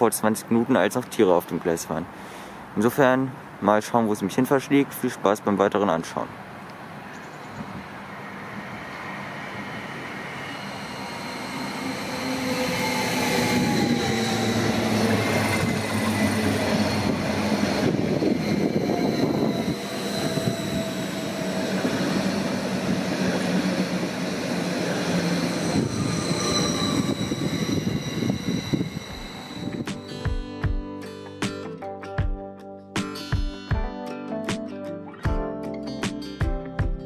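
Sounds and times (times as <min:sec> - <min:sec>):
train running on tracks: 0:06.8 - 0:30.8
high steady squeal: 0:08.2 - 0:30.3
whining tones sliding in pitch: 0:08.6 - 0:30.2.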